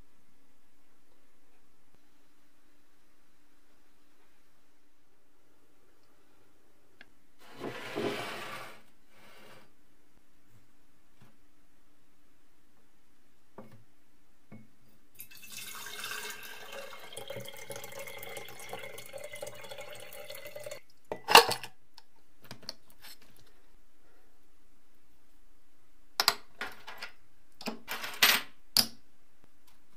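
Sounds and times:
liquid pouring into glass jar: 15.2s - 20.8s.

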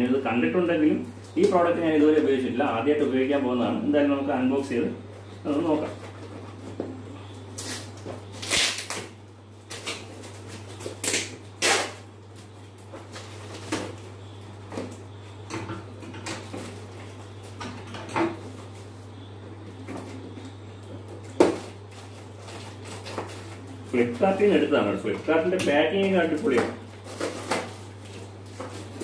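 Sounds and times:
steady low hum: 0.0s - 29.0s
scissors cutting tape and cardboard: 9.7s - 12.0s
cardboard rustling and crackling: 21.1s - 29.0s.

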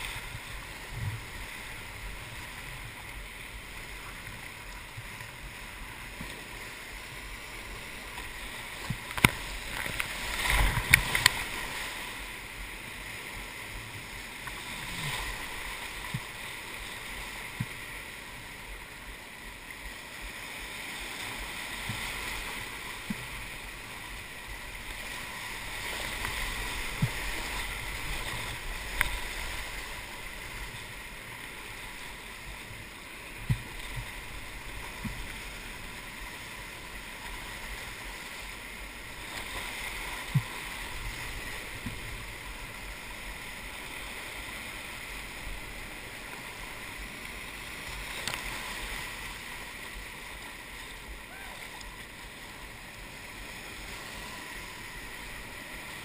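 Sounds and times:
whitewater rushing: 0.0s - 56.0s
water splashing over camera: 8.1s - 12.4s.

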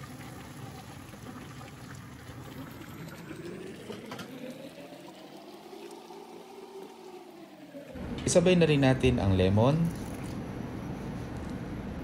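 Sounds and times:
pot contents bubbling: 0.0s - 8.0s
water pouring into a pot: 0.0s - 8.0s.

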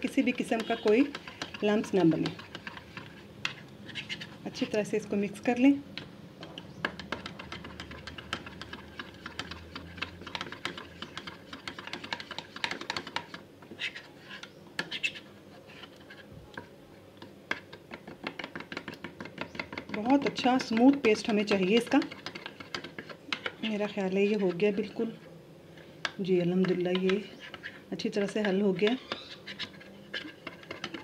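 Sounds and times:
metal spoon scraping plastic tub: 0.0s - 4.8s.

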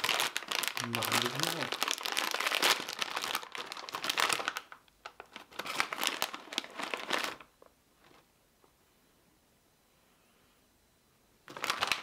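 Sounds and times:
plastic snack bag crinkling: 0.0s - 8.3s, 11.4s - 12.0s.

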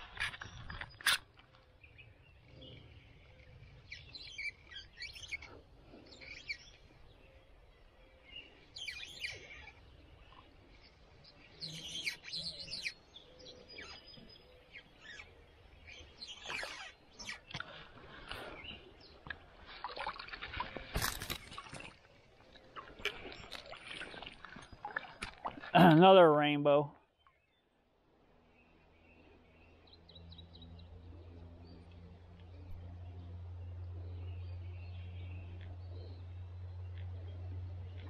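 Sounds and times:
songbirds chirping and singing: 0.1s - 27.8s.

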